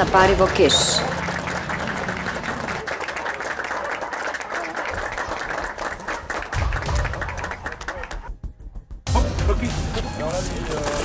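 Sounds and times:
small group clapping: 0.0s - 8.4s.

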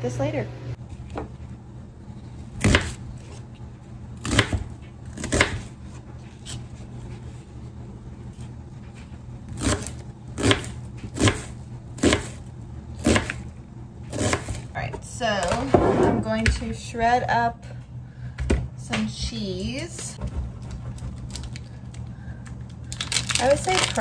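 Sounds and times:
knife chopping onion: 2.5s - 3.4s, 4.2s - 5.8s, 9.5s - 13.5s, 14.1s - 14.7s.

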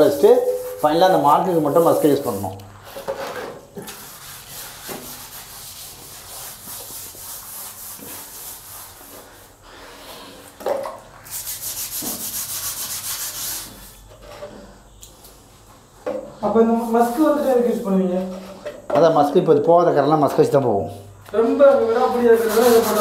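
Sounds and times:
hand scrubbing ceramic: 0.0s - 10.6s, 11.2s - 14.7s, 22.0s - 23.0s.

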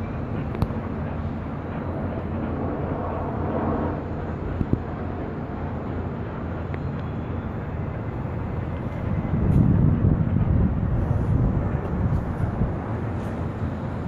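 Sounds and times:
distant traffic rumble: 0.0s - 14.0s.

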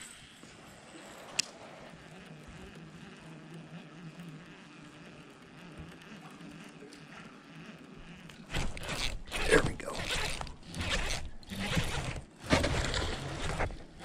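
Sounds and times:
fishing reel whirring: 0.0s - 12.4s.

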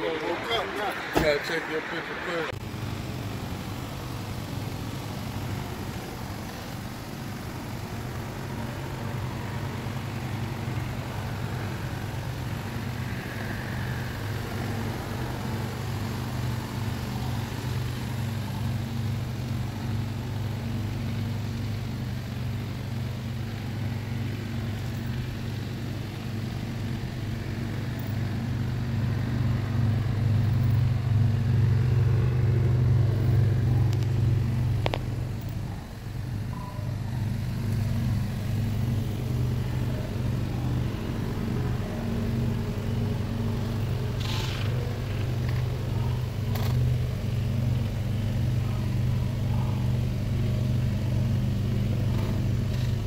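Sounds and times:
engine idling: 0.0s - 53.0s.

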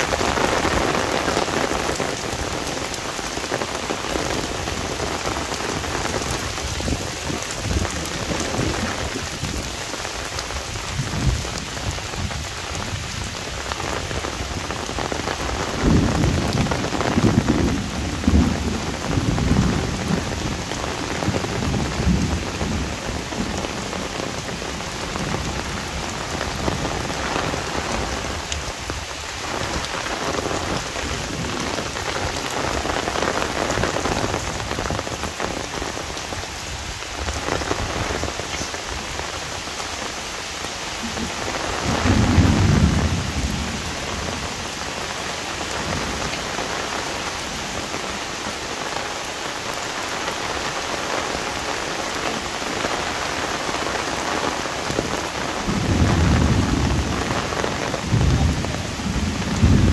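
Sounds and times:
heavy rain on an umbrella: 0.0s - 59.9s
low rumble of thunder: 14.4s - 28.4s, 41.1s - 44.8s, 55.6s - 59.9s.

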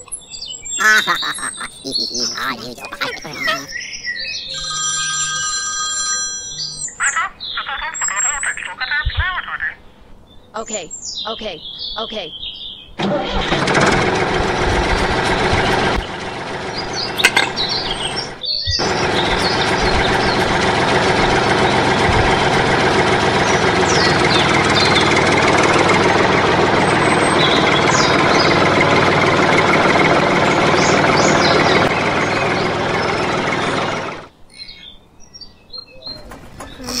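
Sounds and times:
birds chirping: 0.0s - 5.3s, 6.5s - 13.0s, 14.3s - 37.0s
tractor engine running: 13.0s - 34.3s.

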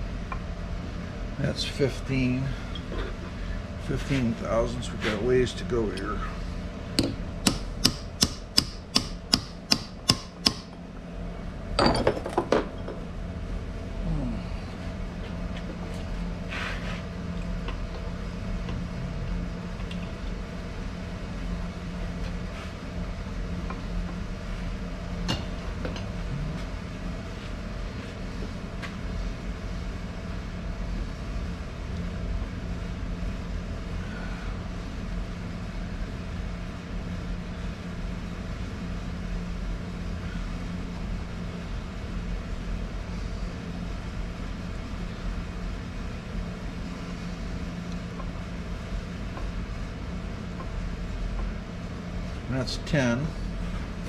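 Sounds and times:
steady low hum: 0.0s - 54.0s
hammer tapping on metal: 7.0s - 10.7s.

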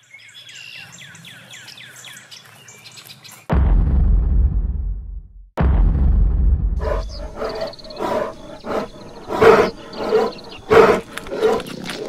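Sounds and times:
low rumble: 3.5s - 9.3s
bear growling: 6.8s - 12.0s.

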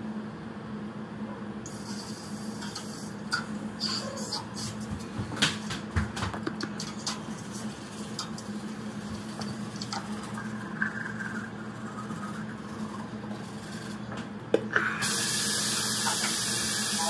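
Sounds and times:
toothbrush scrubbing teeth: 6.6s - 14.0s
water running from tap: 15.0s - 17.0s.

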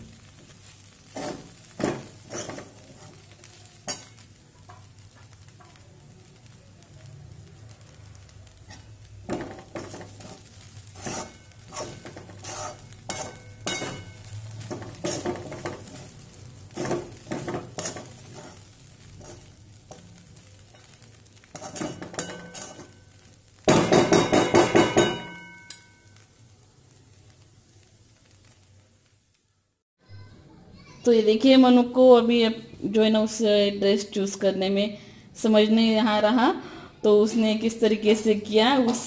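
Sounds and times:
faint sizzle: 0.0s - 39.0s
metal spoon scraping a pan: 0.3s - 5.8s, 8.6s - 26.2s
spoon clinking against pan: 11.0s - 15.8s, 21.6s - 23.0s, 23.7s - 26.2s.

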